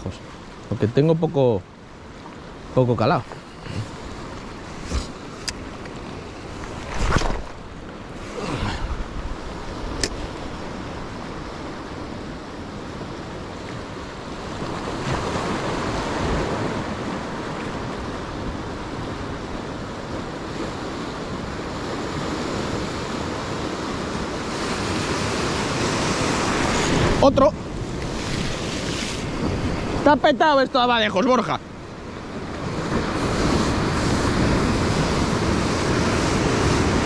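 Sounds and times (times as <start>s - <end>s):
sea surf washing over rocks: 0.0s - 37.0s
wind on microphone: 14.5s - 30.4s.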